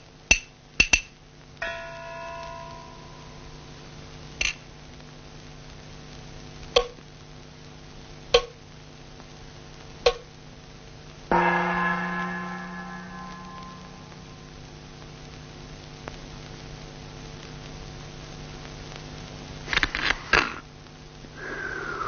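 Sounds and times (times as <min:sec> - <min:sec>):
steady low hum: 0:01.3 - 0:22.0
gong ringing: 0:01.6 - 0:04.0, 0:11.3 - 0:15.1.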